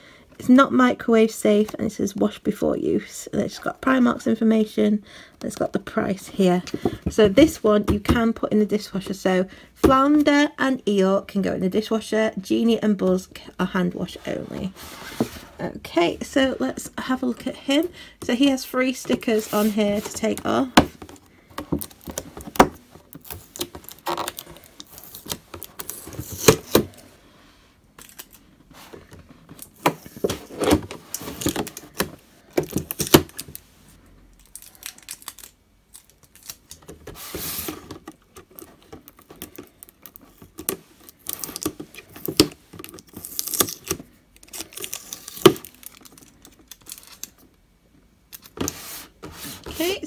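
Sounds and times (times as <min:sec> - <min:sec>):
plastic crinkling: 0:21.0 - 0:27.0, 0:34.3 - 0:47.5.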